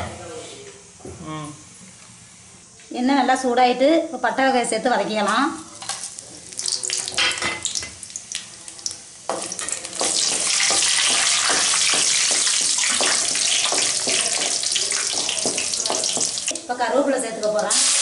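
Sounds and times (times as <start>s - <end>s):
spices sizzling in hot oil: 5.4s - 18.0s.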